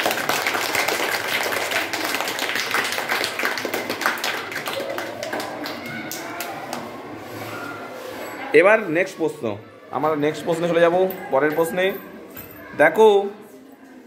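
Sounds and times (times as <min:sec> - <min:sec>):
children clapping: 0:00.0 - 0:06.9.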